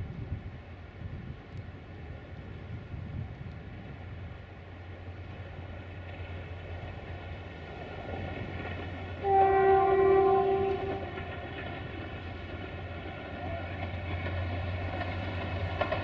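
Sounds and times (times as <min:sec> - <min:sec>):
train rumble: 0:00.0 - 0:16.0
locomotive horn blast: 0:09.2 - 0:11.3.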